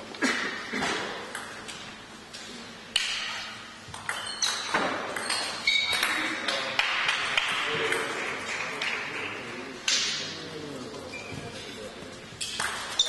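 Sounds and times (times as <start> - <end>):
table tennis ball hits: 2.9 - 9.1, 12.4 - 13.0.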